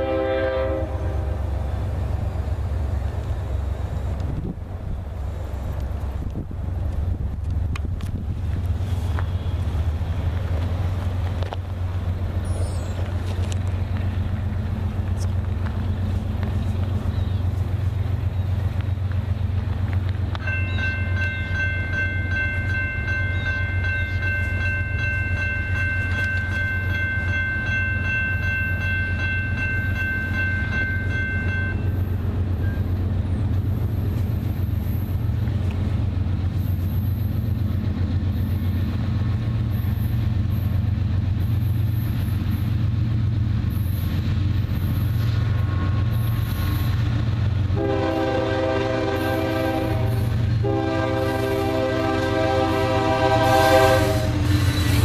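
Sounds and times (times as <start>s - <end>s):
locomotive air horn blasts: 0.0s - 1.5s, 47.7s - 54.6s
crossing warning bell ringing: 20.3s - 33.2s.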